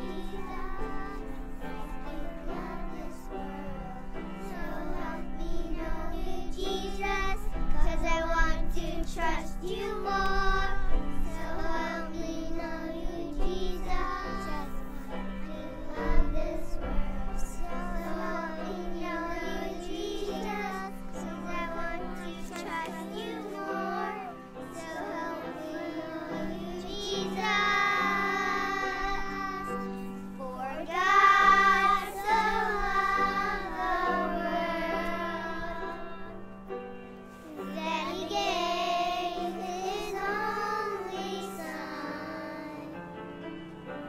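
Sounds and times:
children singing: 0:00.0 - 0:36.5, 0:37.4 - 0:43.1.

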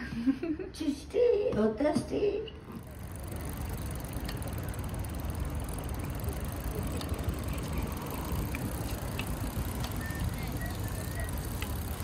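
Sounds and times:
road noise: 0:02.5 - 0:12.0
faint ticks: 0:06.5 - 0:12.0.

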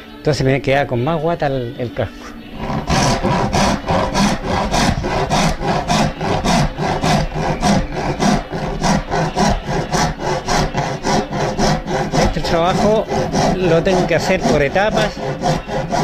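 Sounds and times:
wood rasp scraping wood: 0:02.5 - 0:16.0.

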